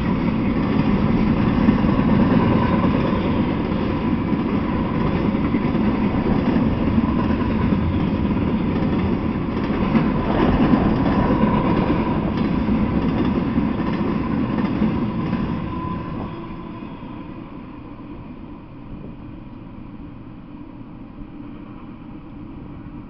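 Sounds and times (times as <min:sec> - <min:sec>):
train wheels rumbling on rail: 0:00.0 - 0:23.0.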